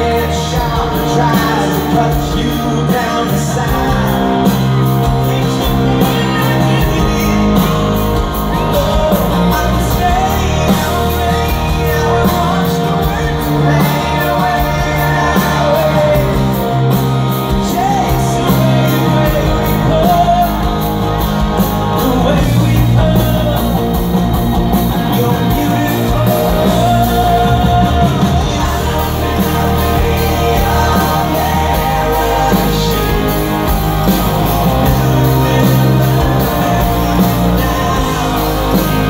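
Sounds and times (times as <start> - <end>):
electric guitar: 0.0 - 39.0
man singing: 0.0 - 39.0
steady drum beat: 0.0 - 39.0.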